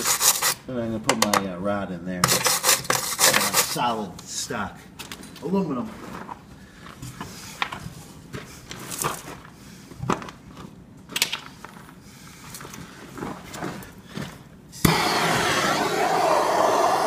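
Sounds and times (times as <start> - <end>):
gas torch hissing: 14.8 - 17.0
gas torch igniting click: 14.8 - 17.0.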